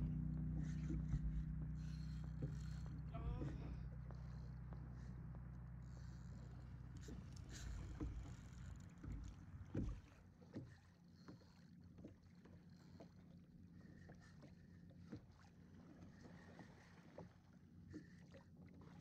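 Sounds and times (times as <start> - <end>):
low rumble: 0.0 - 10.1.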